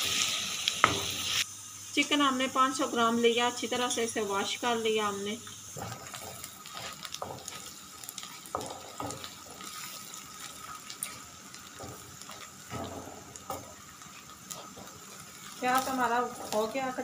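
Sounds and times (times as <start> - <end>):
onions sizzling in oil: 0.0 - 17.0
wooden spatula scraping pan: 5.8 - 7.7.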